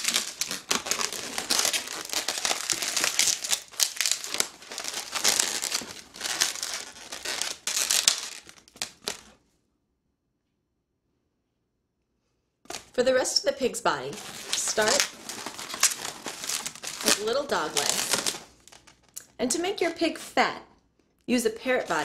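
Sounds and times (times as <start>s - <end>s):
balloon rubbing and stretching: 0.0s - 9.2s.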